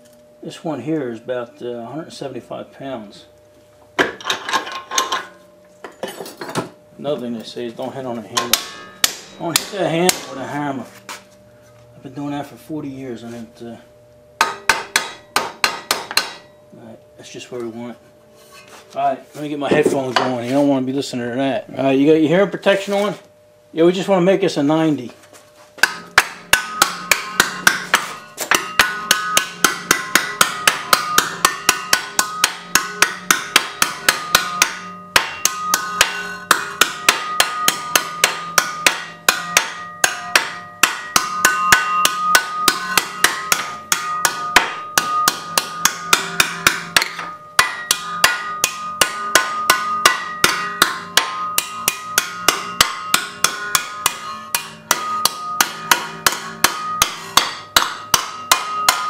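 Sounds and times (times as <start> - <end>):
hammer beating sheet metal: 8.3 - 10.8, 14.4 - 16.5, 25.8 - 59.0.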